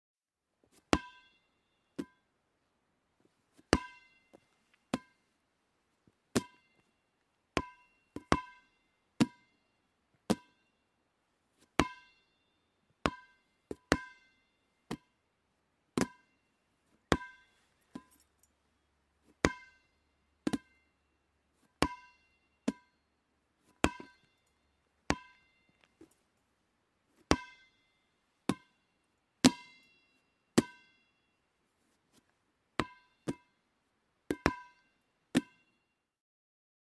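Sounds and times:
ball bouncing with ringing ping: 0.9s - 2.2s, 3.7s - 5.3s, 6.4s - 6.9s, 7.6s - 9.6s, 10.3s - 10.7s, 11.8s - 12.4s, 13.0s - 15.2s, 16.0s - 16.4s, 17.0s - 18.3s, 19.3s - 20.9s, 21.7s - 26.2s, 27.3s - 27.8s, 28.4s - 31.3s, 32.8s - 33.6s, 34.3s - 35.8s.

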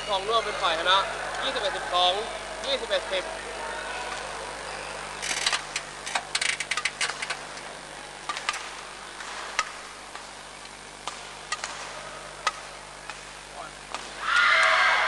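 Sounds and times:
low hum of hall ambience: 0.0s - 15.0s
sharp clicks and knocks: 5.2s - 13.3s.

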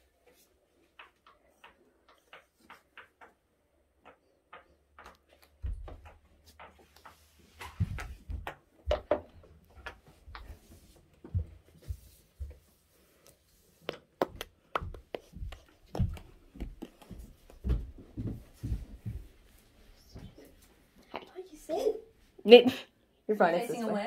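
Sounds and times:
footsteps on wooden floor: 4.0s - 13.0s, 13.8s - 20.8s.

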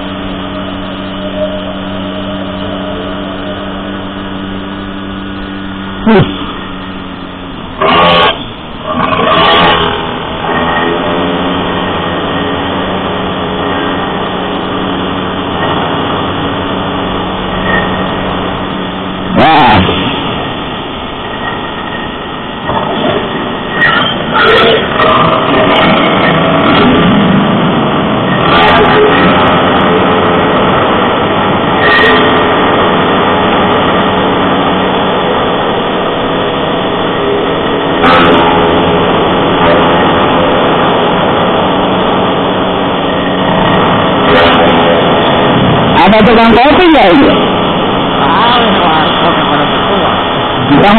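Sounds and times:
engine crackle: 0.0s - 50.9s
motorcycle engine running: 0.0s - 50.9s
wind and road noise: 0.0s - 50.9s.

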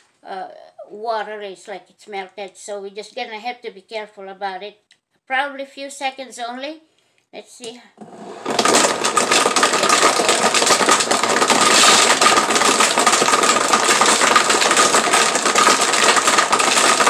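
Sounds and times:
blender motor whine: 8.0s - 17.0s
ice cubes rattling and grinding: 8.3s - 17.0s.

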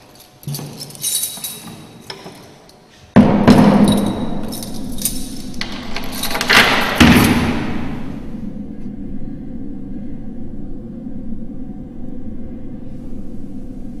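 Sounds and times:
light metallic clinks: 0.0s - 2.9s, 3.8s - 6.8s
heavy metal clang ringing: 3.2s - 8.1s.

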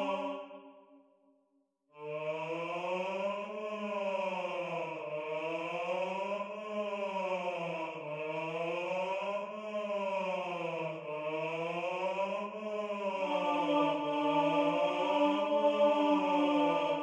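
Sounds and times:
choir basses humming: 0.0s - 0.6s, 11.9s - 17.0s.

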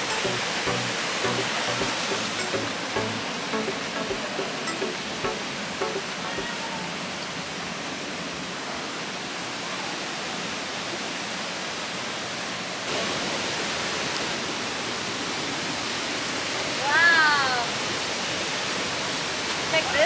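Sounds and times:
river water rushing: 0.0s - 16.8s.

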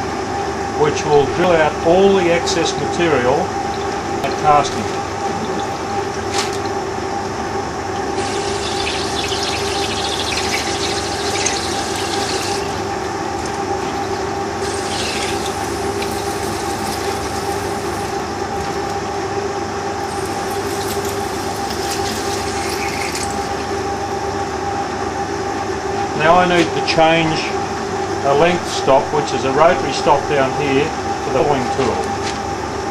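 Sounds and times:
lathe humming: 0.0s - 26.5s
coolant pouring: 1.6s - 19.1s, 19.9s - 24.1s
drill cutting metal hiss: 8.2s - 12.9s, 14.6s - 18.2s.

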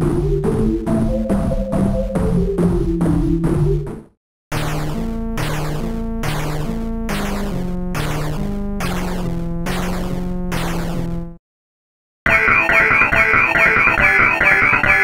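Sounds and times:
synthesizer beat: 0.0s - 3.9s, 12.3s - 15.0s.

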